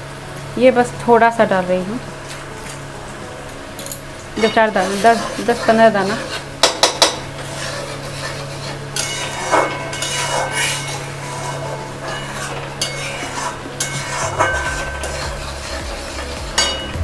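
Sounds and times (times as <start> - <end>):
paste frying: 0.0 - 17.0
metal spatula scraping metal pan: 4.4 - 17.0.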